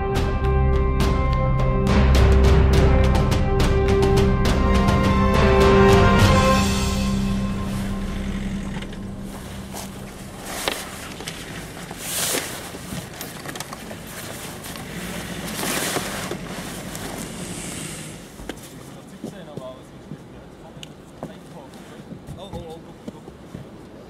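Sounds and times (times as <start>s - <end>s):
intro theme music: 0.0s - 12.0s
fabric cover rustling and sliding: 6.6s - 19.0s.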